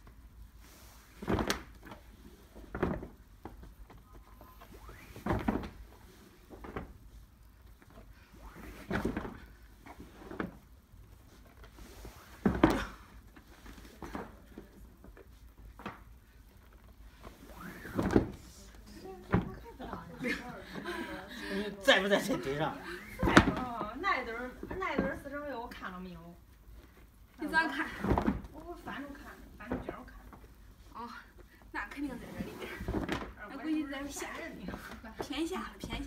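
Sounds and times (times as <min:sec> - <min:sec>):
heavy rugs thudding: 0:11.9 - 0:13.2, 0:17.2 - 0:18.5, 0:23.0 - 0:25.4, 0:27.5 - 0:30.4.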